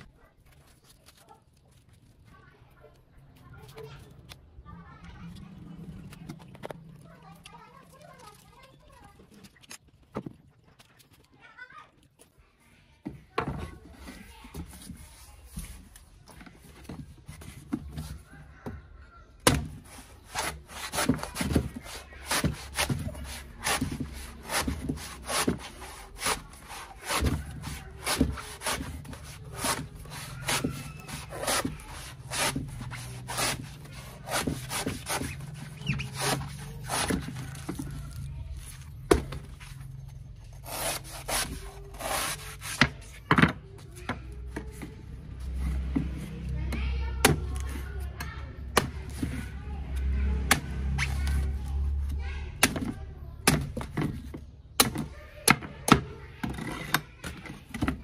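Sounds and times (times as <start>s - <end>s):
machete chopping coconut husk: 19.4s - 38.3s, 39.0s - 39.5s, 40.6s - 43.1s, 50.0s - 51.5s.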